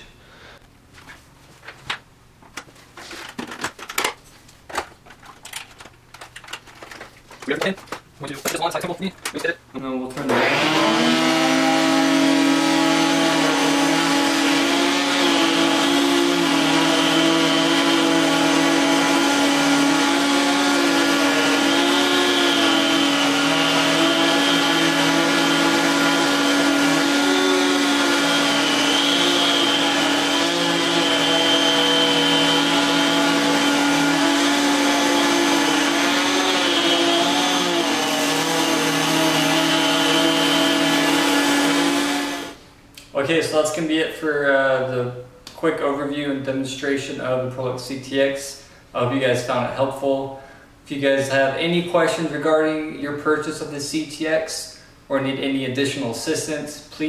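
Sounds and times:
vacuum cleaner running: 10.2s - 42.6s
powerhead brushing rug: 10.3s - 42.6s.

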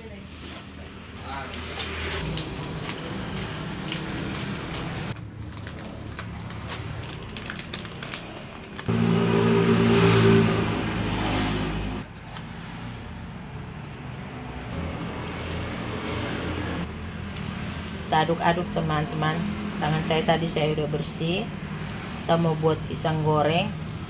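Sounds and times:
plastic bag crinkling: 4.2s - 8.9s
loud steady engine: 8.7s - 12.2s.

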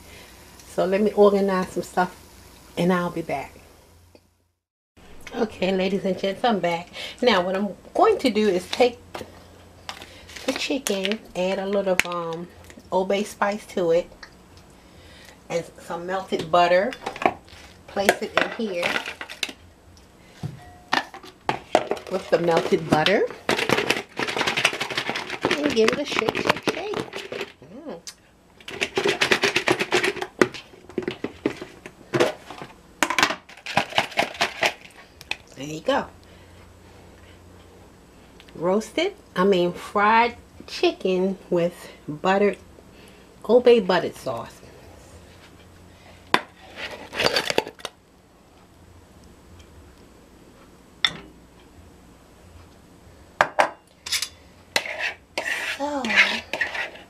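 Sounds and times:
food rattling in plastic bowl: 18.4s - 19.6s, 21.8s - 27.6s, 28.6s - 34.9s.

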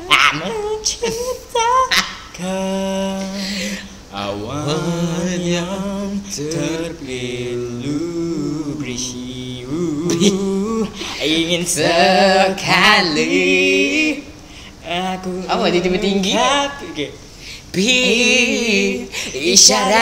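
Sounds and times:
boys singing a cappella: 0.0s - 20.0s.

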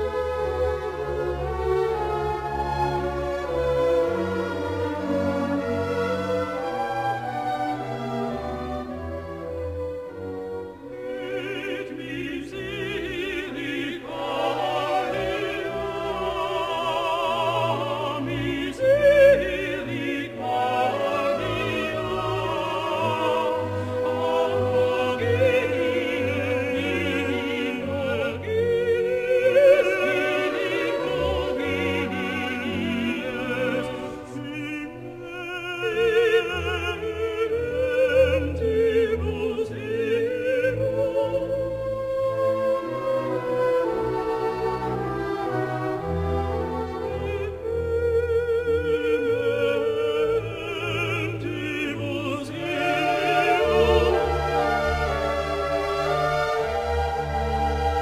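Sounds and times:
orchestra playing: 0.0s - 58.0s
operatic singing voice: 10.8s - 42.2s, 45.4s - 57.4s.

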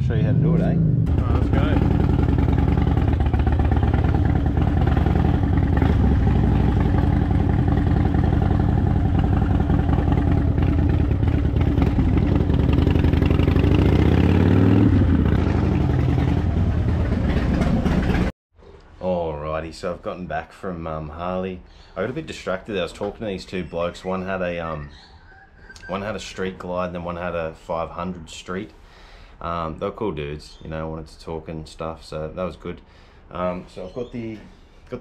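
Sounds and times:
motorcycle engine riding off: 0.2s - 18.3s.

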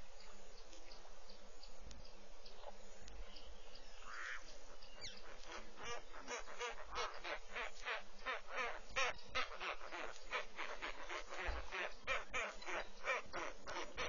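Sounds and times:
birds honking calls: 4.0s - 14.0s.

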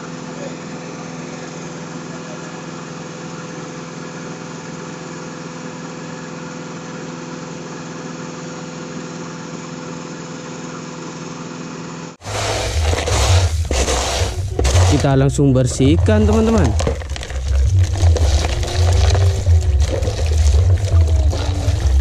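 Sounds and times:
diesel engine running: 0.0s - 22.0s
handling noise: 12.2s - 22.0s.

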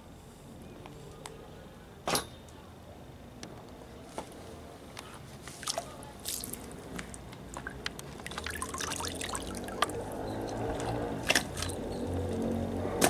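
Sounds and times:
water dripping into tub: 5.6s - 10.6s.

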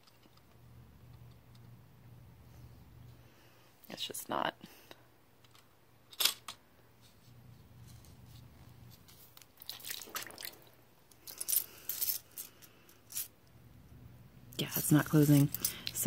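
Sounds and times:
clinking and rustling: 11.1s - 13.4s, 14.7s - 16.0s.

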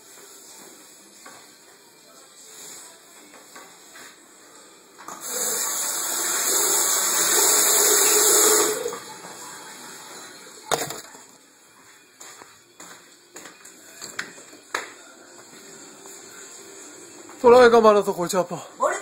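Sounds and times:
toilet flushing: 5.1s - 9.2s.

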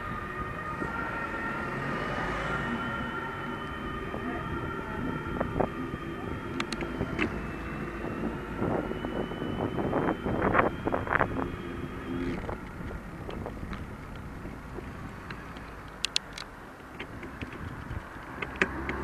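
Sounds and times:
wind on microphone: 0.0s - 15.2s, 17.0s - 19.0s
bicycle tyre rolling on asphalt: 5.6s - 19.0s.

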